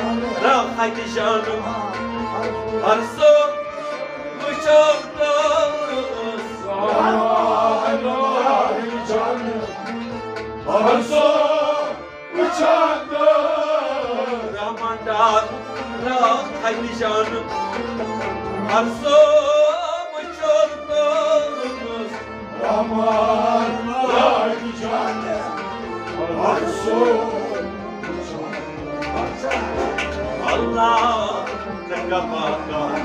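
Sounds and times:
harmonium: 0.0 - 33.0
men singing: 0.0 - 33.0
string instrument: 0.0 - 33.0
hand percussion beat: 22.7 - 33.0.

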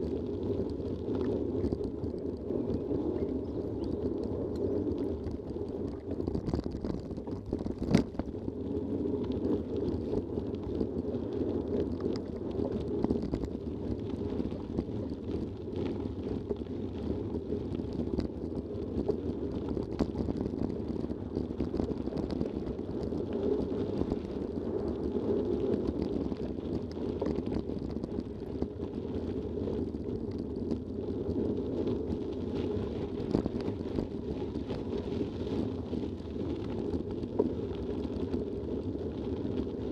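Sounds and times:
mountain bike rolling over gravel: 0.0 - 39.9.

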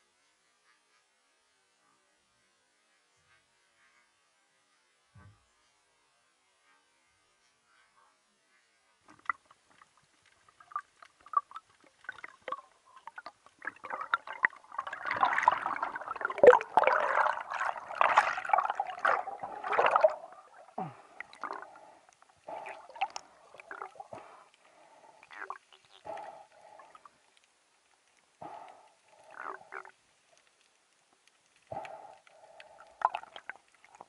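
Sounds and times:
air bubbles gurgling underwater: 10.5 - 24.3, 32.6 - 34.0.

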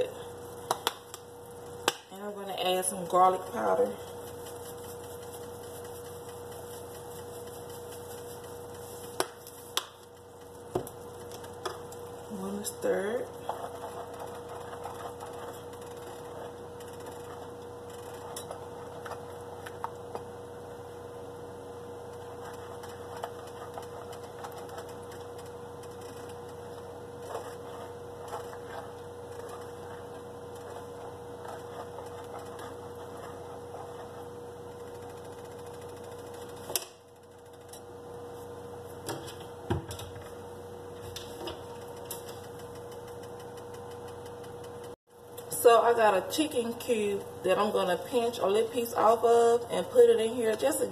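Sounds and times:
steady hum: 0.0 - 50.9
spoon stirring in metal pot: 11.2 - 19.4, 22.2 - 36.6.

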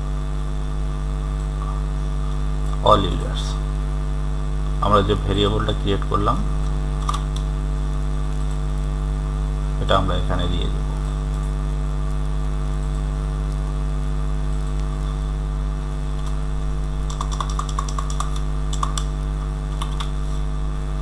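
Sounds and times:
low electrical hum: 0.0 - 21.0
computer keyboard keystrokes: 7.0 - 7.5, 16.2 - 16.4, 17.1 - 19.1, 19.7 - 20.2.

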